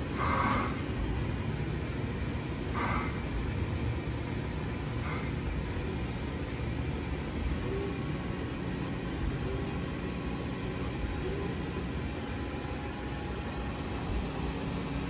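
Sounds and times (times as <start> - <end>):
low machine hum: 0.0 - 15.0
short hiss of threading cut: 0.2 - 0.8.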